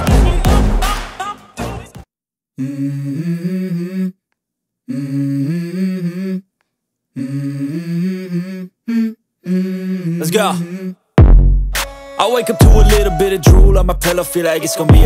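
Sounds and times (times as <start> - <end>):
person humming a melody: 2.6 - 4.2, 7.2 - 11.0, 12.2 - 15.0.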